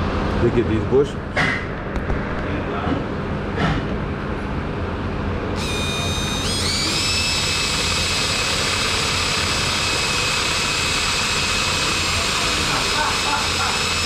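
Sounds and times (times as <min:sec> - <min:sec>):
power tool motor whine: 0:05.6 - 0:14.0.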